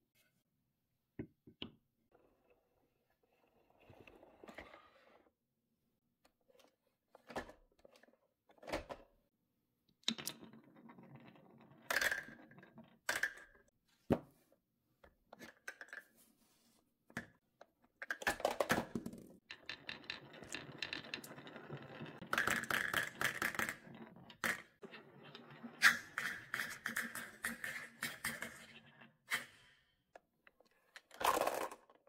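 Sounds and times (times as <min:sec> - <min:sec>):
marbles clicking and rolling: 0:19.5 - 0:28.6.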